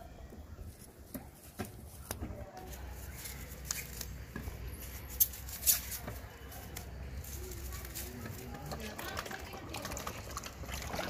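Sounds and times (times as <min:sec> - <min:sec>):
foam mesh sleeves rustling: 0:00.6 - 0:09.0.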